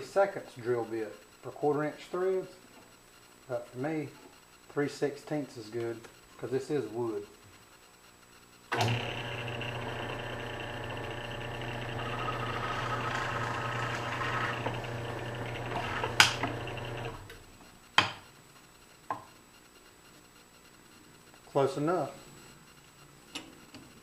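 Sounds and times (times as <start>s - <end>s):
drill press motor humming: 8.7s - 17.4s
drill bit boring wood: 8.8s - 17.3s.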